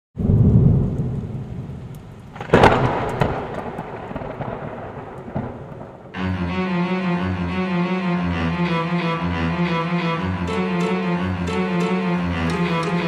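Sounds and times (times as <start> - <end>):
thunder rumbling and cracking: 0.2 - 6.2
steady rain: 0.2 - 6.5
low bowed-string music: 6.2 - 13.0.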